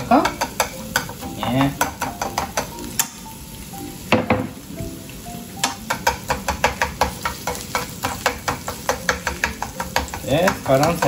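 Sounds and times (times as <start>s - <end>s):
chopsticks clicking against a pan: 0.0s - 3.2s, 5.6s - 11.0s
onions sizzling in a frying pan: 0.0s - 11.0s
knock: 4.2s - 4.6s.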